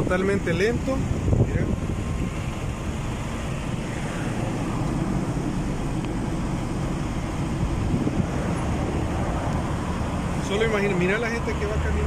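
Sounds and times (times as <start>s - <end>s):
car engine and tyres rumbling: 0.0s - 12.0s.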